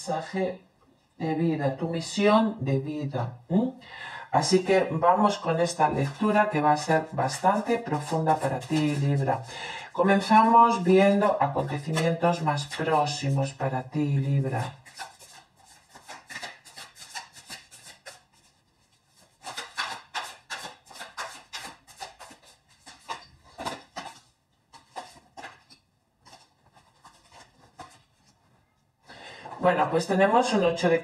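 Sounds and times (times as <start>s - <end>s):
cards being shuffled: 7.3s - 9.5s, 11.6s - 13.2s, 14.5s - 28.5s.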